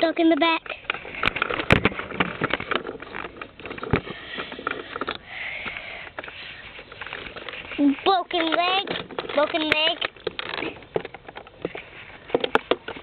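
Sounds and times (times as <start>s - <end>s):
toy handling clicks and knocks: 0.0s - 13.0s
breathy rush of air: 3.8s - 7.8s.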